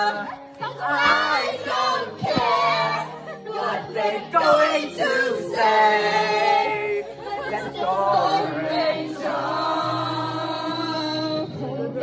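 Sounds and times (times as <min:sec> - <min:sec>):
backing music: 0:00.0 - 0:12.0
voices singing into a microphone: 0:00.0 - 0:12.0.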